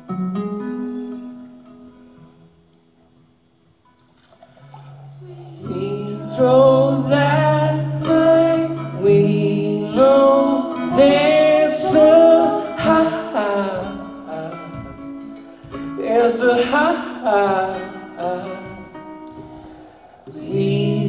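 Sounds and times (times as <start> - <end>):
acoustic guitar: 0.0 - 21.0
person singing: 5.2 - 21.0.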